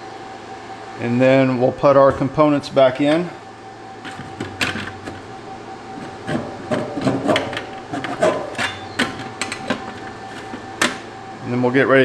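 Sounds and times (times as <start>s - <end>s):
metal scraping: 5.9s - 11.0s.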